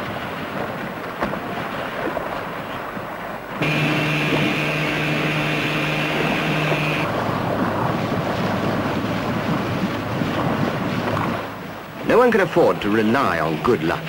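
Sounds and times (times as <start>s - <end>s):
engine drone with high whine: 3.6s - 7.2s
boat engine: 3.6s - 9.4s, 12.0s - 14.0s
rushing bow wash: 3.6s - 14.0s.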